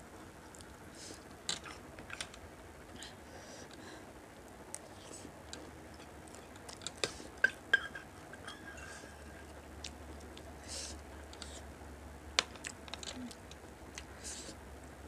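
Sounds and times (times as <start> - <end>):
quiet chewing: 0.2 - 2.4, 4.6 - 11.7, 12.4 - 14.6
metal spoon clinking on bowl: 7.4 - 9.6.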